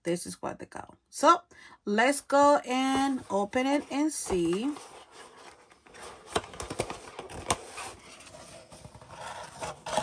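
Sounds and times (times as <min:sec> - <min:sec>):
cardboard scraping and rustling: 0:02.8 - 0:10.0.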